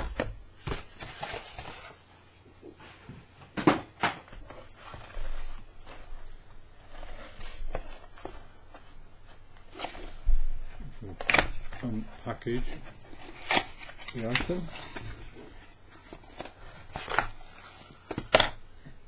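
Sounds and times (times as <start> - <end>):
cardboard box scraping and shuffling: 4.4 - 10.3.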